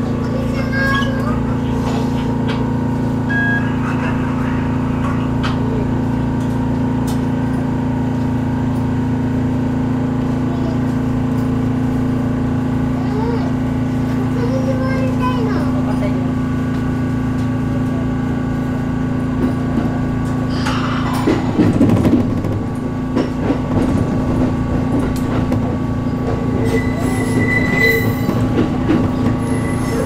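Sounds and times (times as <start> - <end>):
train low hum: 0.0 - 30.0
high wheel squeal: 26.6 - 28.5, 29.2 - 30.0.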